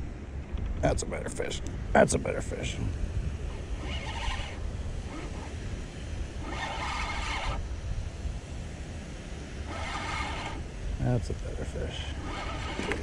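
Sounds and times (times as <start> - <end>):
wind on microphone: 0.0 - 11.0
fishing reel whirring: 2.2 - 11.1, 11.7 - 13.0.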